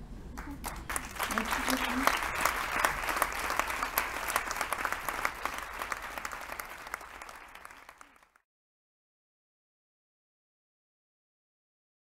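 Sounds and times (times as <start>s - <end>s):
audience applauding: 0.4s - 8.4s.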